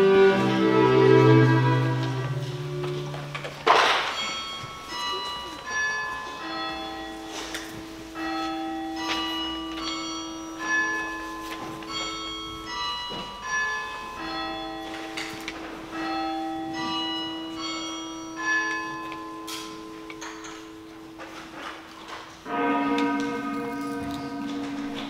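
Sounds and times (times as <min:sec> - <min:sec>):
church bells ringing: 0:00.0 - 0:25.0.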